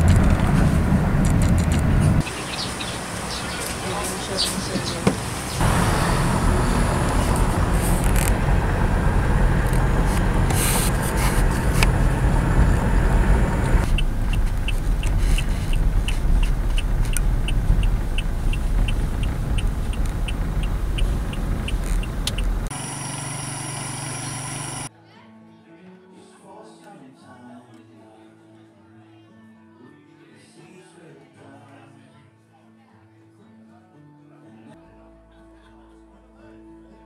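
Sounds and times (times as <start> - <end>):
vehicle road and wind rumble: 0.0 - 24.9
high steady ticking: 2.2 - 4.4, 11.7 - 24.9.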